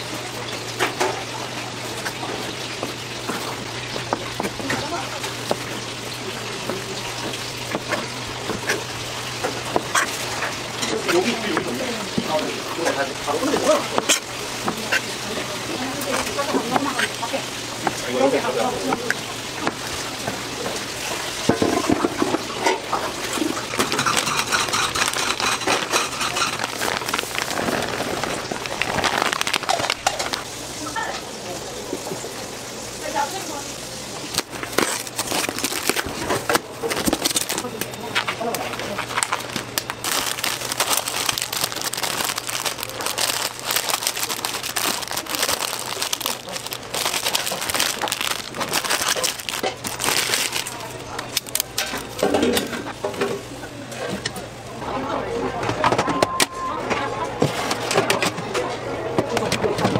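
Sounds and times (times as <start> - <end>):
plastic packets crinkling: 23.2 - 30.5, 34.2 - 52.4.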